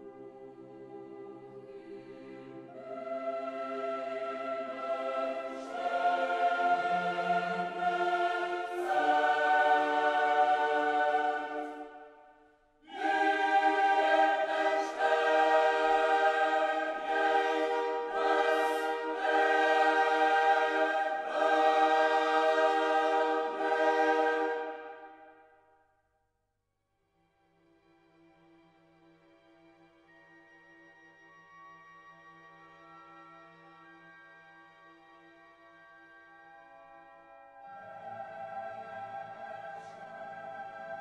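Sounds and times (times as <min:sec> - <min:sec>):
choir singing held chords: 0:00.0 - 0:25.6, 0:37.5 - 0:41.0.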